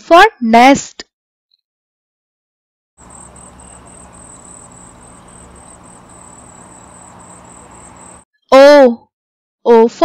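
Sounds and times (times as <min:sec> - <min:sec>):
cricket chirping: 0:03.0 - 0:08.2
low background hum: 0:03.0 - 0:08.2.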